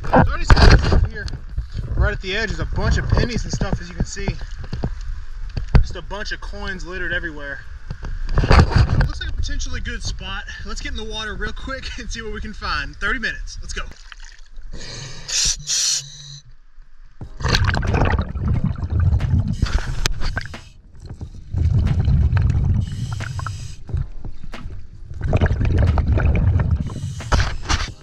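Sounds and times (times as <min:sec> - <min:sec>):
water splashes: 0:13.7 - 0:14.8, 0:17.2 - 0:28.0
diver breathing through regulator: 0:14.7 - 0:16.4, 0:19.4 - 0:23.9, 0:25.5 - 0:28.0
exhaled bubbles rumbling: 0:17.2 - 0:28.0.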